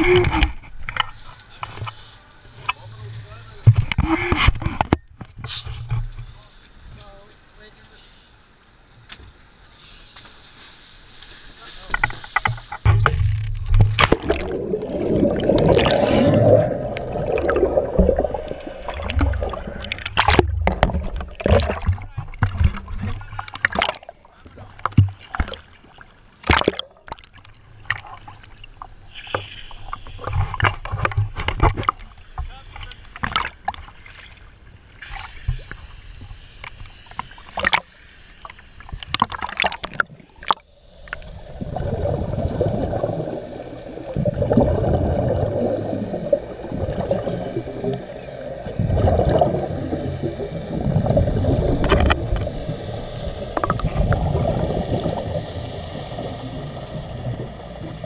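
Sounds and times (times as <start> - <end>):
water splashing against camera: 11.7 - 34.4, 35.1 - 56.3
scuba regulator exhaust bubbles: 13.8 - 24.0, 38.9 - 58.0.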